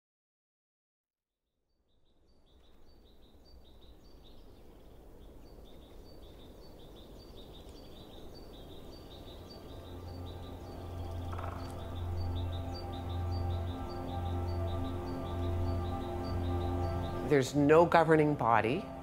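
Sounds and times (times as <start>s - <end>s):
wind-like noise: 2.4s - 11.4s.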